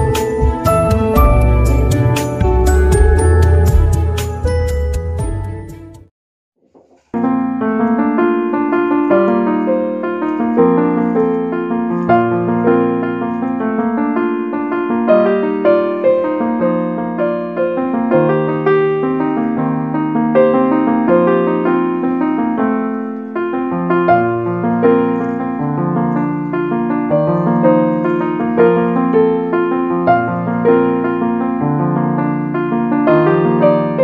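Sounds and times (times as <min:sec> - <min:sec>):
solo piano playing: 0:00.0 - 0:06.1, 0:07.1 - 0:34.0.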